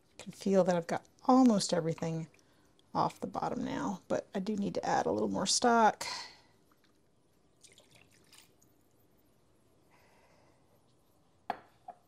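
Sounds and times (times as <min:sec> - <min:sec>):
liquid pouring and dripping: 0:06.6 - 0:09.3.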